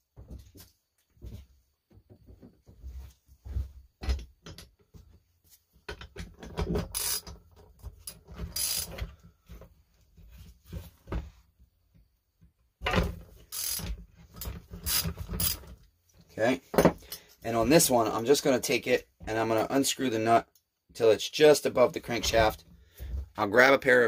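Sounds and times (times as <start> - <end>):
ratchet clicking: 6.8 - 7.4, 8.0 - 9.0, 13.5 - 15.6
metal clinks and knocks: 16.7 - 17.4.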